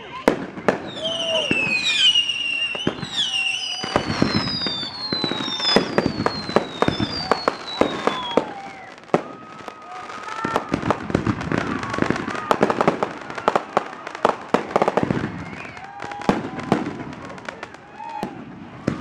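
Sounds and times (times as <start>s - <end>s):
fireworks popping and crackling: 0.0s - 19.0s
falling firework whistles: 0.7s - 10.9s, 14.5s - 17.1s.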